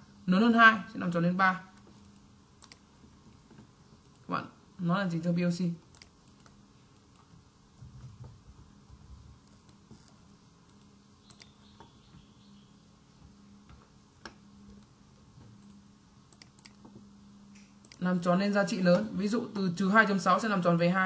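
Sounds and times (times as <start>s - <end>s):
faint low hum: 0.0s - 21.0s
computer mouse clicks: 1.8s - 4.3s, 5.8s - 7.4s, 9.4s - 12.0s, 13.2s - 18.1s.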